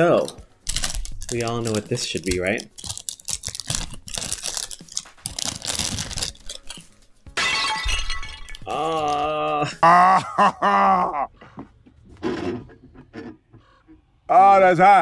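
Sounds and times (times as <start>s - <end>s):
foil wrapper crinkling: 0.0s - 7.2s
man exclaiming: 8.7s - 10.3s.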